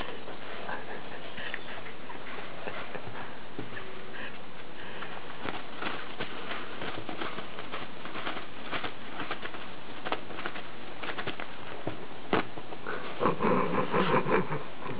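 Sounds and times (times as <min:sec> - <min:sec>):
paper rustling and crinkling: 0:04.8 - 0:12.8.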